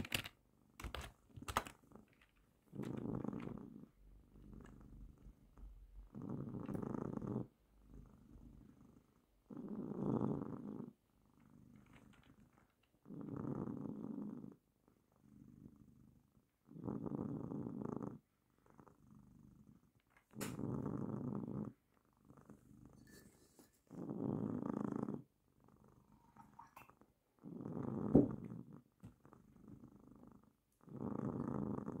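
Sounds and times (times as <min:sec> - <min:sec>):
cat purring: 0:00.0 - 0:32.0.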